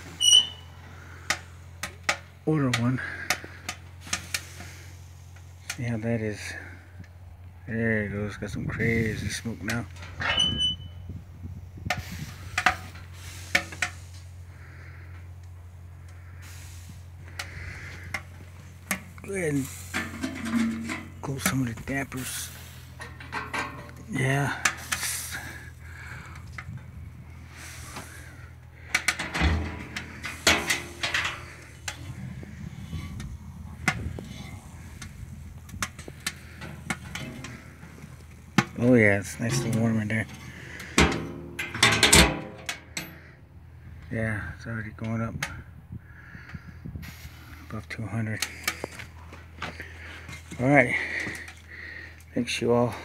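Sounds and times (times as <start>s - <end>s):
steady low hum: 0.0s - 45.0s
metal door clanking: 10.0s - 10.9s, 29.0s - 31.5s, 40.9s - 43.0s
wood fire popping: 22.1s - 39.8s.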